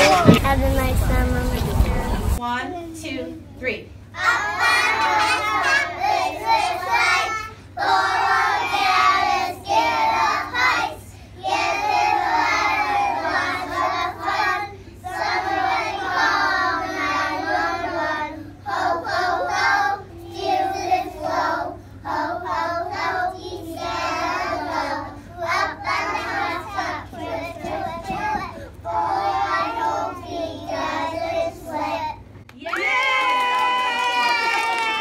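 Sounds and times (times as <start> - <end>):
children singing in unison: 4.2 - 32.1.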